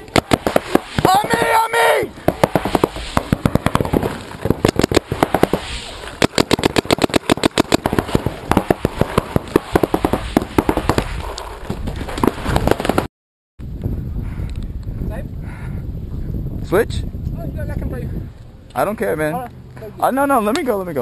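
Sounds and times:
paintball markers firing: 0.0 - 1.6, 2.2 - 13.1.

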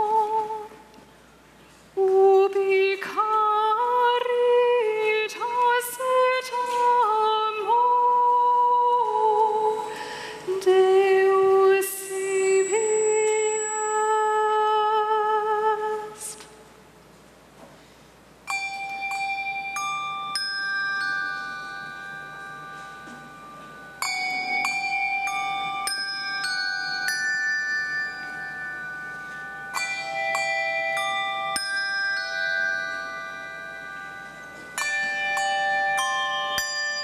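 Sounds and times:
handbells ringing: 12.0 - 14.6, 18.5 - 37.0.

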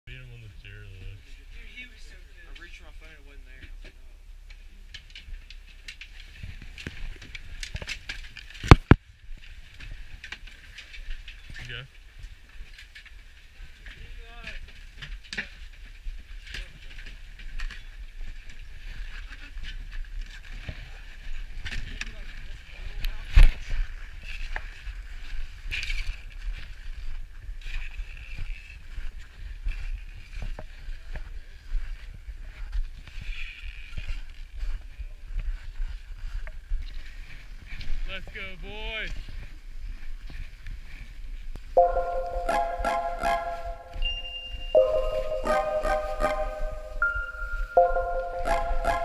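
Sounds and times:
ski gear clicks and knocks: 4.9 - 11.6.

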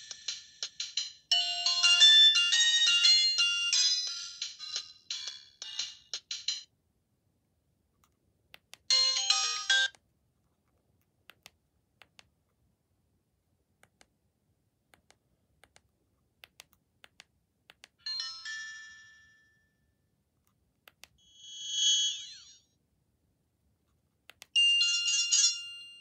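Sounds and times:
phone ringtone melody: 0.0 - 6.6, 8.9 - 9.9, 18.1 - 19.7, 24.6 - 26.0.

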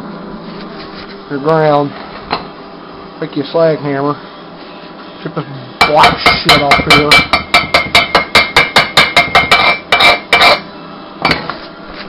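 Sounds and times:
hammer striking metal: 5.8 - 10.6
metallic ringing: 5.8 - 11.5.

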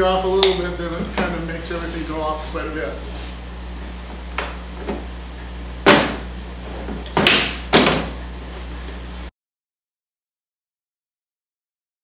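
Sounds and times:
tools knocking on workbench: 6.9 - 8.2.

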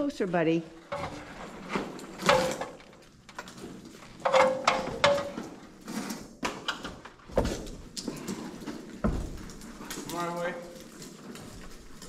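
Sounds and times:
wood scraping on wood: 0.6 - 6.4.

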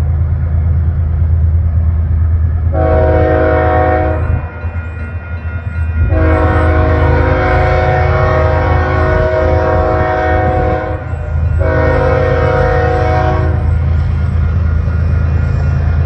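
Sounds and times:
locomotive air horn blasts: 2.7 - 4.5, 6.1 - 13.8.

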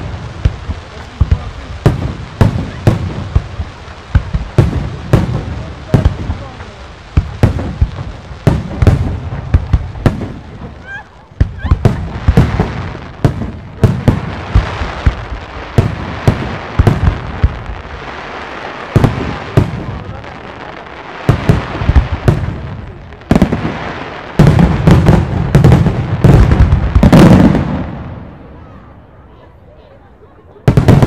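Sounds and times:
firework crackling: 0.0 - 29.4, 30.6 - 31.0.

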